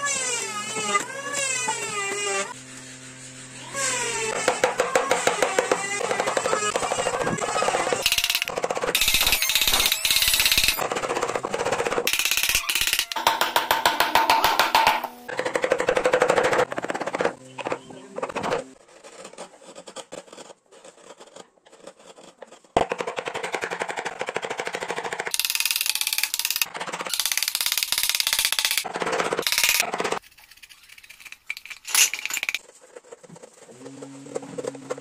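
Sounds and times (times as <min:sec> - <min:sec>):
chisels knocking into wood: 0:12.8 - 0:15.1.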